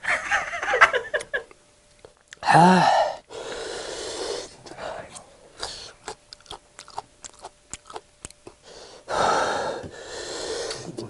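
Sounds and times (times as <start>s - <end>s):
noisy breathy sound: 2.4s - 6.0s, 8.6s - 11.0s
chewing mushrooms: 5.1s - 8.6s
wet mouth clicks and smacks: 5.6s - 8.6s.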